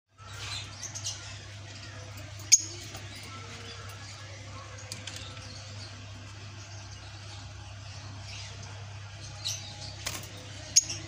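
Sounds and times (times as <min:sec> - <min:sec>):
lovebirds squeaky chirps: 0:00.2 - 0:04.3.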